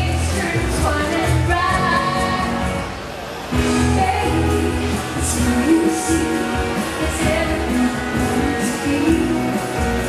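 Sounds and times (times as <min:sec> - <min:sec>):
woman singing into microphone: 0:00.0 - 0:02.9, 0:03.6 - 0:10.0
instrumental backing with bass: 0:00.0 - 0:10.0.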